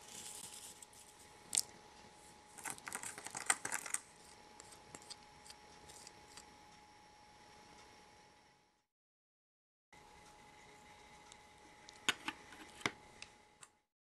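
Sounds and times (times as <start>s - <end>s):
stirring in a plastic cup: 2.6s - 5.2s.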